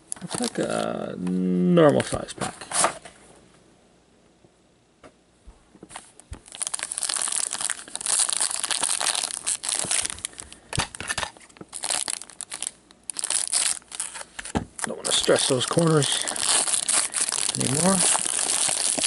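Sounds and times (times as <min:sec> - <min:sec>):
foil wrapper crinkling and tearing: 0:00.1 - 0:00.9, 0:06.4 - 0:19.0.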